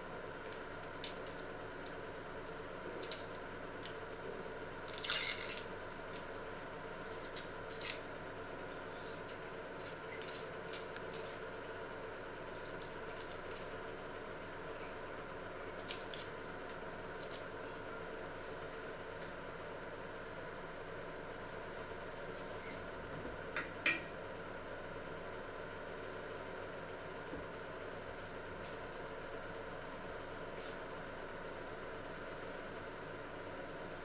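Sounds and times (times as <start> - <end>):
faint hum: 0.0 - 34.0
onion skin crackling: 2.9 - 4.0, 4.9 - 6.4, 7.0 - 11.6, 12.5 - 13.8, 15.8 - 16.5.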